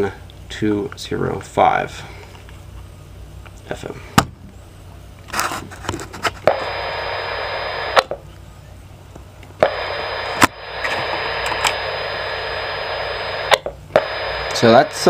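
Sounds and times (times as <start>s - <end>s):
radio static hiss: 5.3s - 8.8s, 9.5s - 15.0s
radio clicks: 6.4s - 8.2s, 9.2s - 14.9s.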